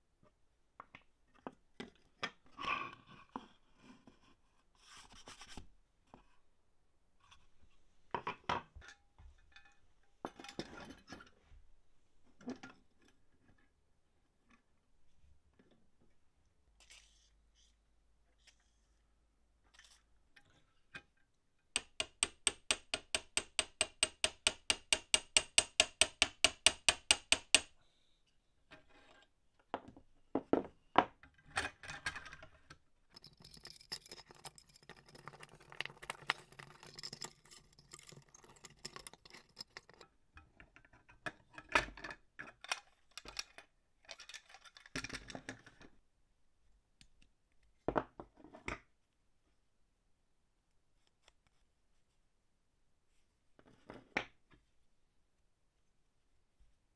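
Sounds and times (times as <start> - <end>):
small metal parts clinking: 33.2 - 40.0.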